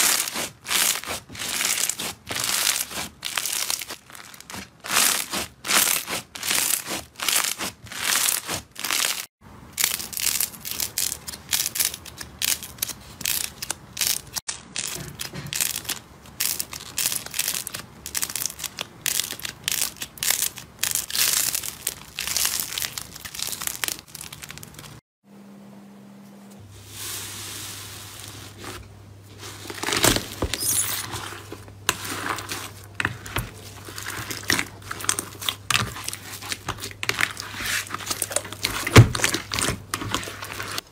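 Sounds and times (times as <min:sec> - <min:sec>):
wet slime squelching: 0:00.0 - 0:09.3, 0:28.3 - 0:40.9
crunchy slime crackling and popping: 0:00.0 - 0:25.0, 0:29.7 - 0:40.9.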